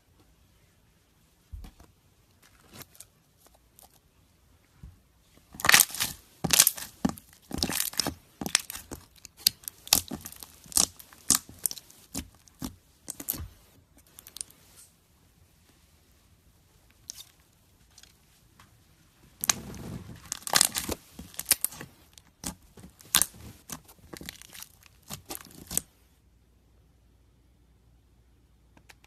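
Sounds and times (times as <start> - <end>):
slime squished by hand: 5.5 - 14.8, 19.4 - 25.9.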